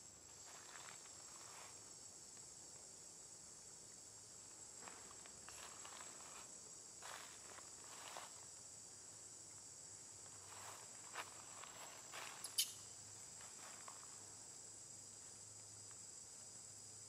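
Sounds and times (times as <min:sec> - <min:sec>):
insects droning: 0:00.0 - 0:17.0
rustles of dry leaves: 0:10.3 - 0:12.7.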